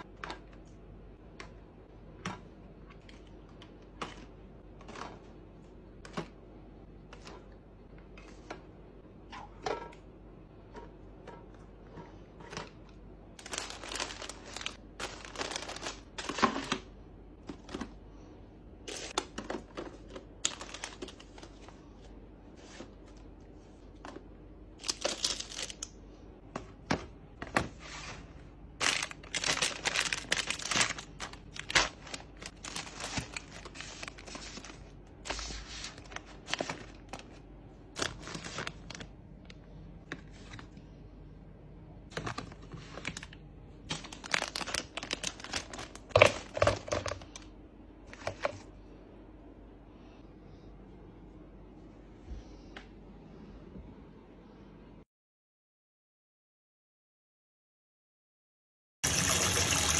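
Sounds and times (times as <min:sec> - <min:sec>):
plastic packaging crinkling: 0:13.4 - 0:16.8, 0:18.9 - 0:21.8, 0:24.8 - 0:26.0, 0:28.8 - 0:39.6, 0:42.1 - 0:47.5.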